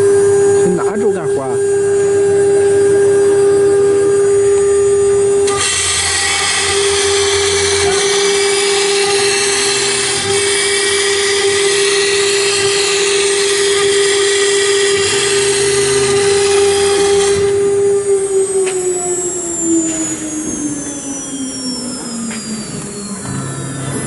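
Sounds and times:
router spindle high whine: 0:00.0 - 0:24.0.

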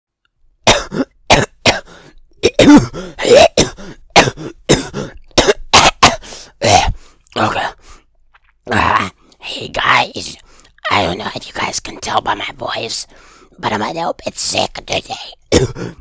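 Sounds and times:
person clearing throat: 0:00.7 - 0:07.0, 0:15.5 - 0:16.0
person coughing: 0:00.7 - 0:07.0, 0:15.5 - 0:16.0.

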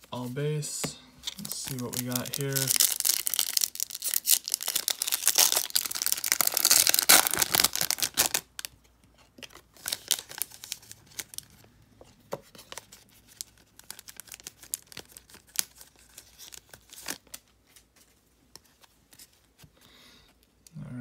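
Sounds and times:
card pack wrapper tearing: 0:01.3 - 0:08.7, 0:09.8 - 0:11.4.

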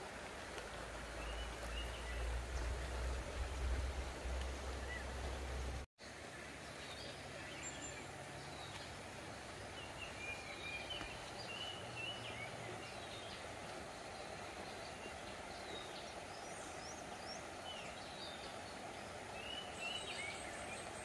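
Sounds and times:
steady background hiss: 0:00.0 - 0:21.0
birds calling in whistled notes: 0:09.8 - 0:21.0.

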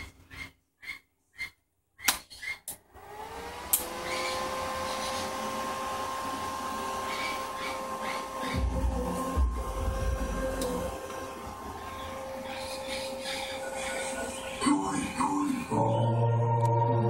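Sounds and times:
amplifier cooling fan whirring: 0:02.8 - 0:15.8.

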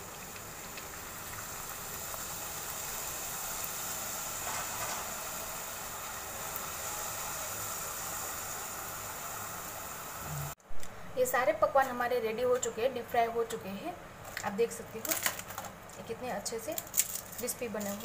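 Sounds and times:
hot oil sizzling: 0:00.0 - 0:10.6.

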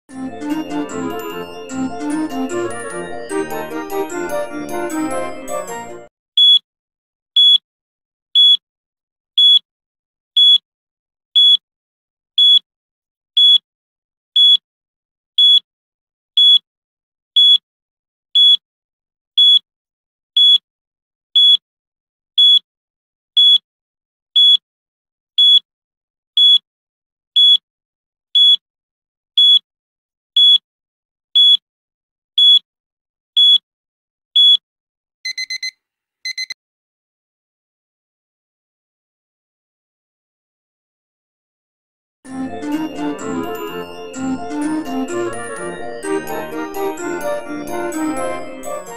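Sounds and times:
high electronic timer beeps: 0:06.4 - 0:06.6, 0:07.4 - 0:07.6, 0:08.4 - 0:08.6, 0:09.4 - 0:09.6, 0:10.4 - 0:10.6, 0:11.4 - 0:11.6, 0:12.4 - 0:12.6, 0:13.4 - 0:13.6, 0:14.4 - 0:14.6, 0:15.4 - 0:15.6, 0:16.4 - 0:16.6, 0:17.4 - 0:17.6, 0:18.4 - 0:18.6, 0:19.4 - 0:19.6, 0:20.4 - 0:20.6, 0:21.4 - 0:21.6, 0:22.4 - 0:22.6, 0:23.4 - 0:23.6, 0:25.4 - 0:25.6, 0:26.4 - 0:26.6, 0:28.4 - 0:28.6, 0:29.4 - 0:29.6, 0:30.4 - 0:30.6, 0:31.4 - 0:31.6, 0:32.4 - 0:32.6, 0:33.4 - 0:33.6, 0:34.4 - 0:34.6, 0:35.3 - 0:35.7, 0:36.3 - 0:36.6
lower alarm beep: 0:06.4 - 0:06.6, 0:09.4 - 0:09.6, 0:33.4 - 0:33.6, 0:35.3 - 0:35.7, 0:36.3 - 0:36.6.

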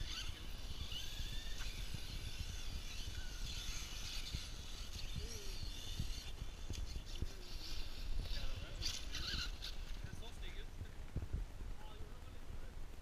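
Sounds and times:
distant toy car motors whining: 0:00.0 - 0:10.4
wind on microphone: 0:00.0 - 0:13.0.

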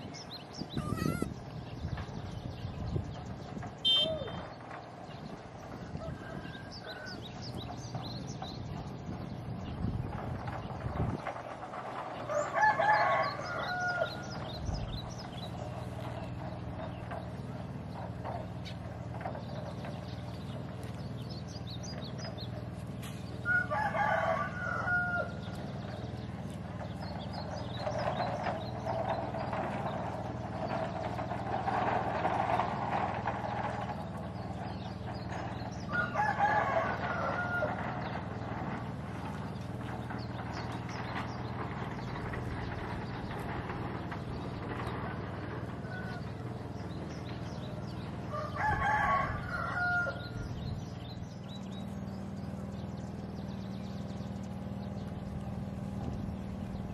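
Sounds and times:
rooster crowing: 0:12.3 - 0:14.4, 0:23.4 - 0:25.5, 0:35.9 - 0:38.2, 0:45.1 - 0:46.5, 0:48.2 - 0:50.5.

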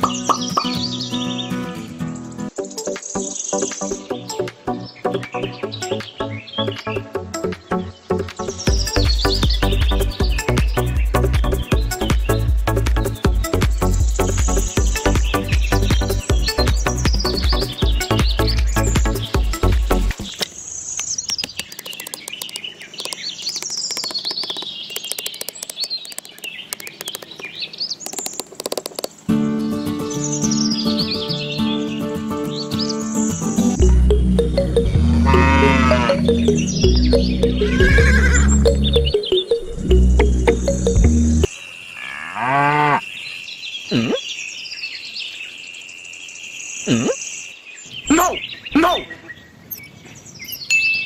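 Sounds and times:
birds chirping and trilling: 0:00.0 - 0:51.0
electronic music: 0:08.7 - 0:20.3, 0:33.5 - 0:41.5
crickets chirring: 0:20.3 - 0:29.3
short sharp clicks: 0:20.4 - 0:29.2
cow mooing: 0:35.2 - 0:36.3, 0:37.6 - 0:38.6, 0:42.0 - 0:43.0.

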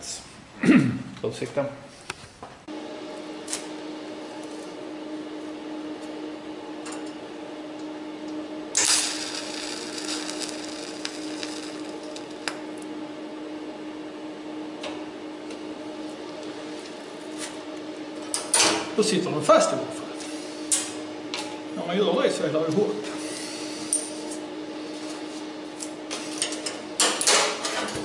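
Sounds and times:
steady hum: 0:00.0 - 0:28.0
welding arc crackling and sizzling: 0:07.8 - 0:13.1.

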